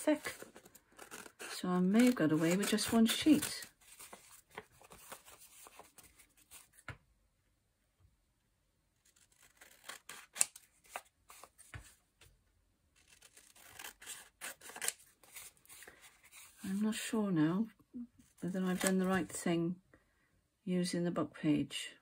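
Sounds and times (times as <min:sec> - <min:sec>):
scissors snipping paper: 0:00.1 - 0:06.2, 0:09.0 - 0:11.5, 0:13.0 - 0:15.5.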